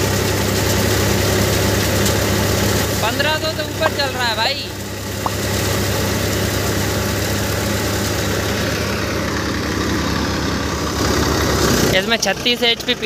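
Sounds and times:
tractor diesel engine throbbing: 0.0 - 13.0
thresher rushing noise: 2.2 - 12.0.

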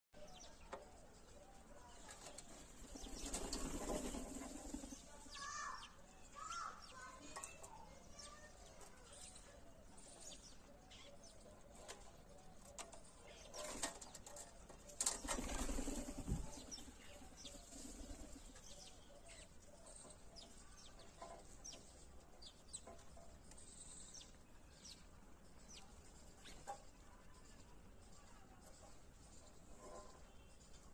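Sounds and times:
bird wings flapping: 3.0 - 5.0, 15.0 - 16.8.

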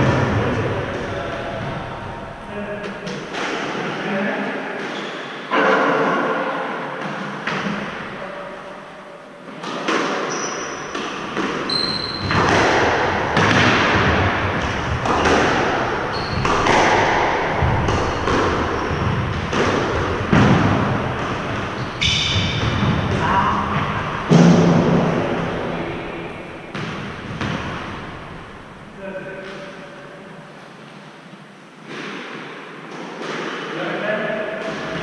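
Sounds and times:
squash ball smacking with echo: 0.0 - 4.0, 4.8 - 8.2, 9.5 - 28.8, 31.8 - 35.0
shoes squeaking on hardwood floor: 10.2 - 12.4, 16.0 - 16.7.

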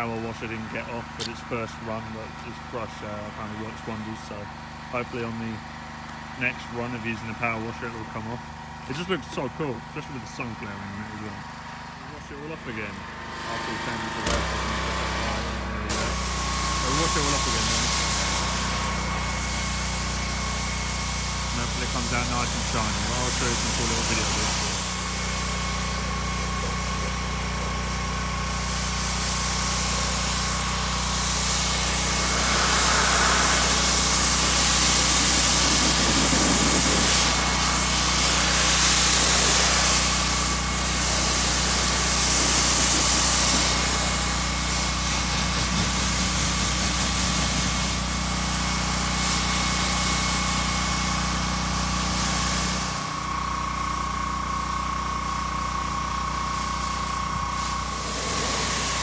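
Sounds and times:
pressure washer motor hum: 0.0 - 59.0
water jet hissing: 15.2 - 53.2, 56.4 - 59.0.

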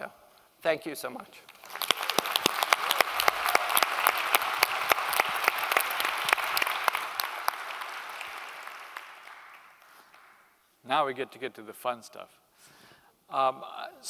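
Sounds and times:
crowd applause: 1.5 - 10.5.

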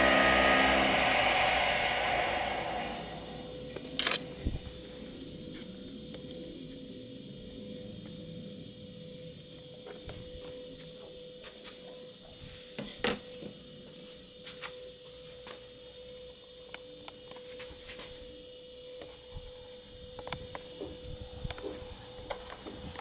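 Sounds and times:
faint electronic hum with hiss: 0.0 - 3.5.

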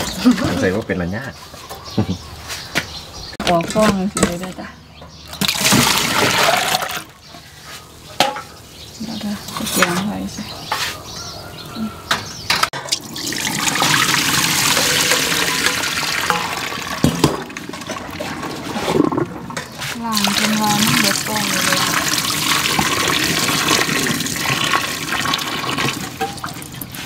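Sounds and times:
water pouring into steel sink: 12.8 - 19.3, 20.1 - 27.0.

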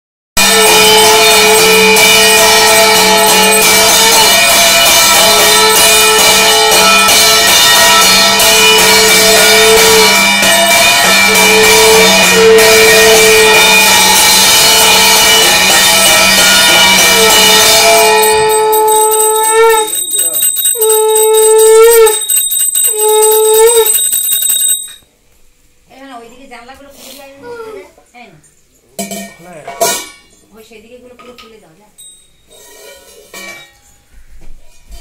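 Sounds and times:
brass plate beaten with stick: 0.4 - 24.8, 29.0 - 30.3.

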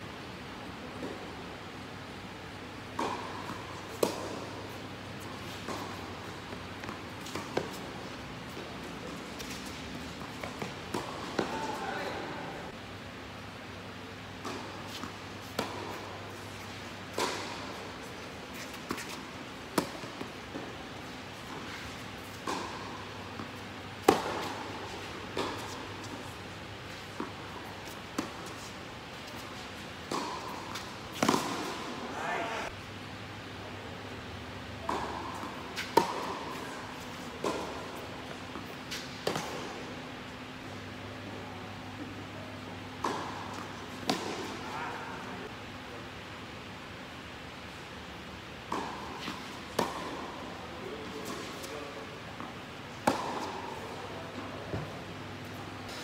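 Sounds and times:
tennis balls bouncing: 2.8 - 12.7, 14.1 - 32.8, 34.7 - 41.0, 41.8 - 44.8, 48.6 - 51.7, 52.4 - 56.0
racquet striking ball: 22.4 - 26.2, 30.0 - 32.7, 43.0 - 44.8, 48.7 - 50.4, 53.0 - 53.7.

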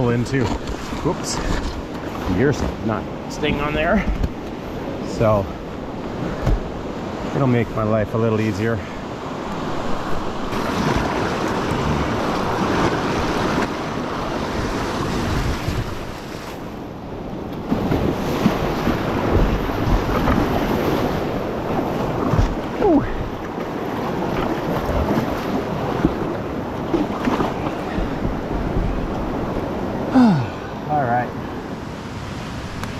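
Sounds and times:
wind buffeting microphone: 9.1 - 30.7
whitewater rushing over rocks: 9.4 - 16.6.

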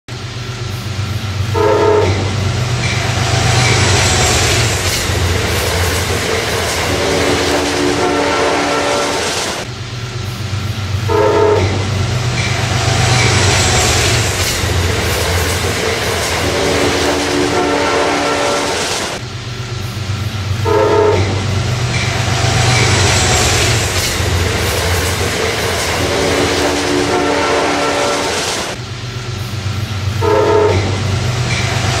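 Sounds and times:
train rumbling on rails: 0.1 - 32.0
train horn blasts: 1.5 - 2.5, 7.1 - 9.3, 11.1 - 12.0, 16.6 - 18.9, 20.6 - 21.6, 26.3 - 28.4, 30.2 - 31.1.

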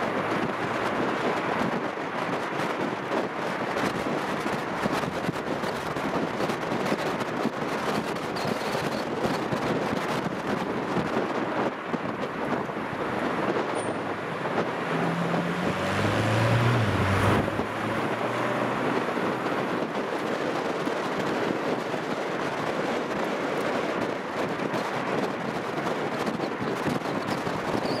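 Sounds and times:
road and wind noise: 0.0 - 28.0
low engine drone: 12.7 - 20.0.

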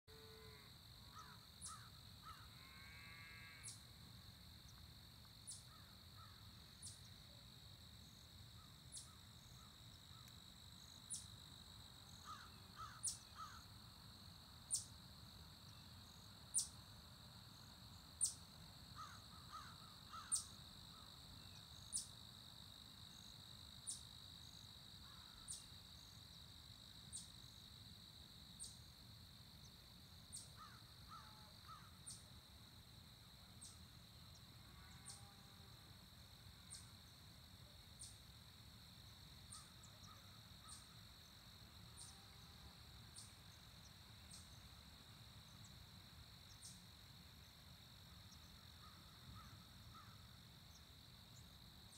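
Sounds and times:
insects trilling: 0.1 - 4.0, 5.5 - 7.3, 8.0 - 27.7, 28.5 - 28.9, 30.3 - 32.4, 37.9 - 38.3, 39.1 - 44.8, 48.3 - 51.6
crows cawing: 19.0 - 20.4.

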